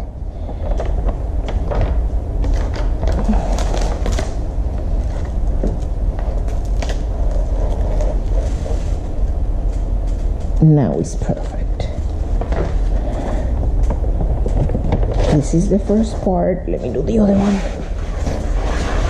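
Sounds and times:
steady low rumble: 0.0s - 19.0s
paper and plastic film rustling: 0.5s - 10.4s, 14.2s - 19.0s.

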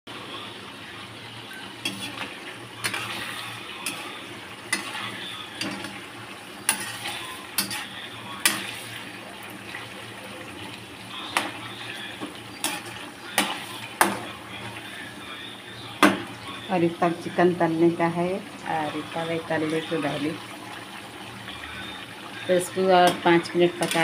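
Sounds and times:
chicken sizzling in oil: 0.1s - 24.0s
metal spatula scraping a pan: 1.8s - 9.2s, 11.3s - 14.9s, 23.0s - 24.0s.

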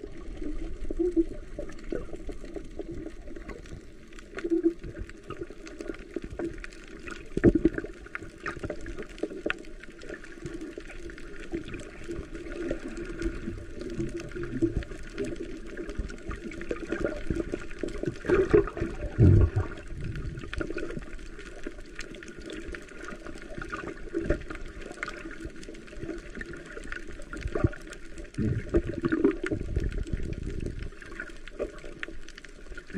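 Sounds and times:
muffled underwater gurgling: 0.0s - 32.9s
underwater knocks: 18.2s - 20.5s.

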